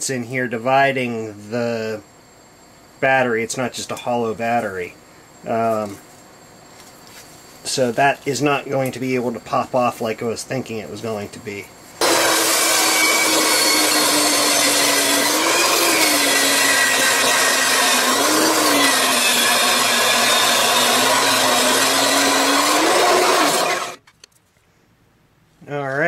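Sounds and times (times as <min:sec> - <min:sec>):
bandsaw cutting plastic: 0:12.0 - 0:24.0.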